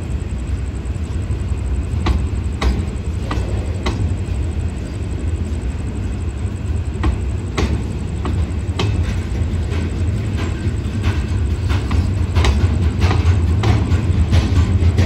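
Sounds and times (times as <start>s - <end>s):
diesel train rumbling: 0.0s - 15.0s
sharp clicks and knocks: 7.0s - 15.0s.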